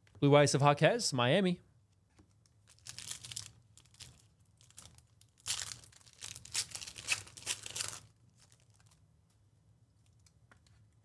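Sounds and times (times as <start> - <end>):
foil wrapper tearing and crinkling: 2.7 - 9.0.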